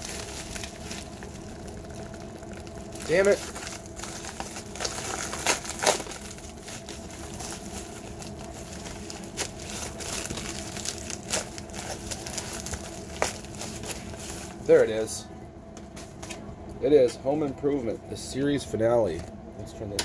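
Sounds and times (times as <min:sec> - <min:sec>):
plastic mailer crinkling: 0:00.0 - 0:14.9.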